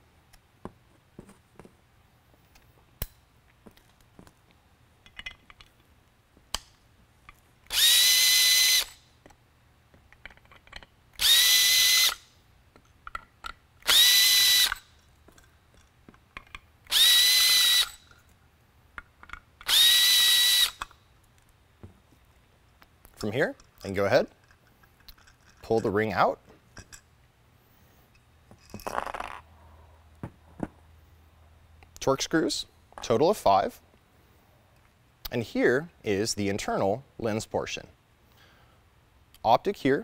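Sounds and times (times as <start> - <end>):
cordless drill whining: 7.7 - 9.0, 11.2 - 12.2, 13.8 - 14.8, 16.9 - 18.0, 19.6 - 20.8.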